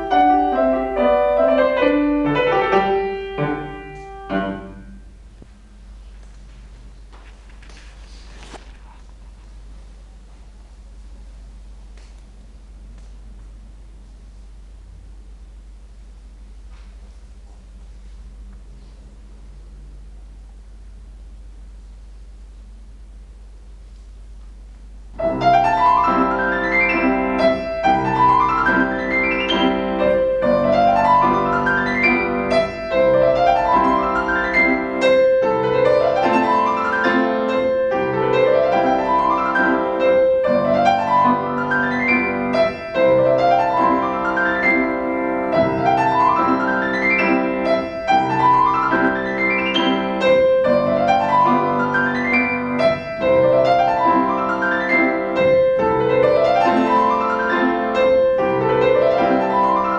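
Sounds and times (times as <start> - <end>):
solo piano playing classical piece: 0.0 - 5.3, 25.1 - 59.9.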